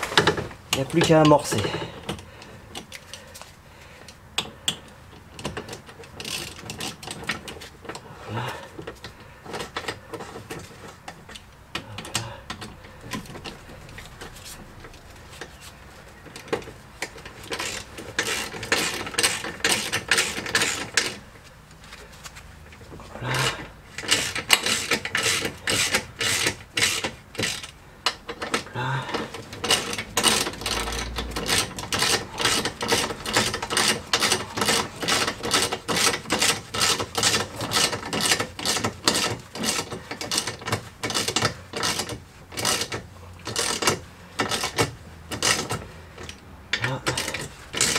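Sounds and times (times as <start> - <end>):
ratchet wrench clicking: 5.4 - 7.2, 17.0 - 21.2, 23.9 - 47.9.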